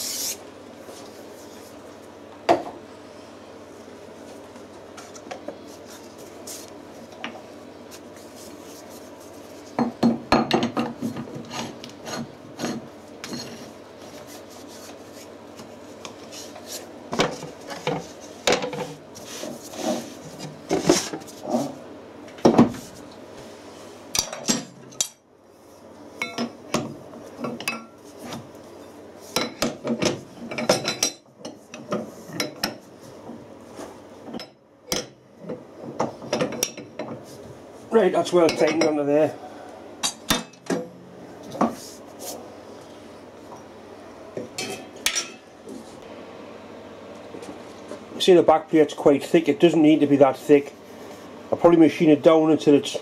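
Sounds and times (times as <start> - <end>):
rag wiping and scraping: 19.2 - 21.8.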